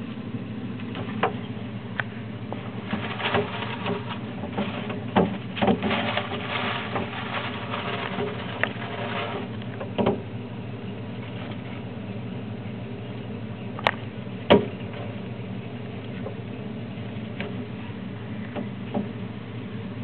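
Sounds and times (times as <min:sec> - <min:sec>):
steady low hum: 0:00.0 - 0:20.0
paper bedding rustling: 0:02.5 - 0:09.6
sharp paper crackles: 0:02.5 - 0:09.8
mouse scurrying in bedding: 0:02.5 - 0:10.0.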